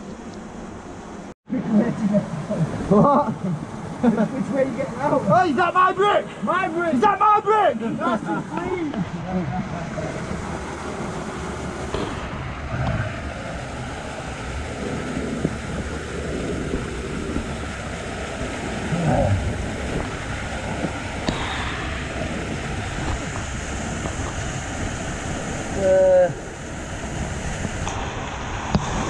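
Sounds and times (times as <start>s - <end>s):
water pouring and splashing: 9.8s - 29.0s.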